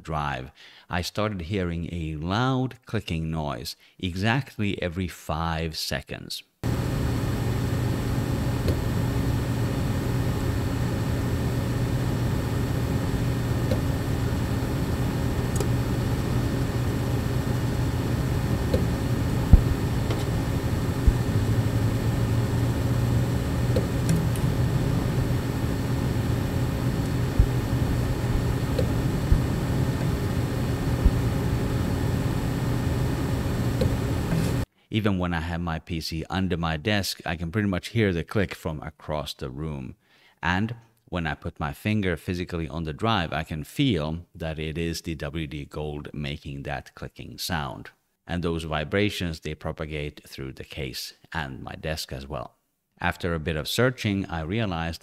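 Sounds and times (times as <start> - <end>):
computer fans humming: 6.6 - 34.6
hard drive clicking: 6.7 - 31.8, 33.7 - 34.6.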